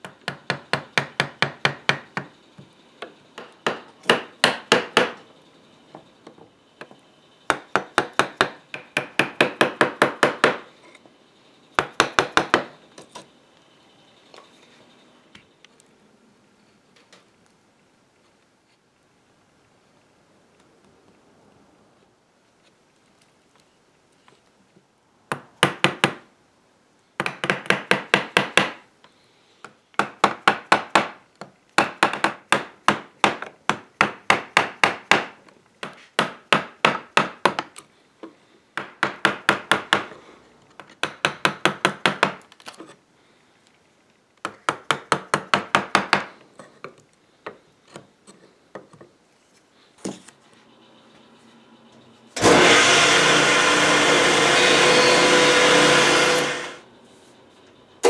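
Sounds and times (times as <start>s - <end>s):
jointer running loudly: 52.4s - 56.8s.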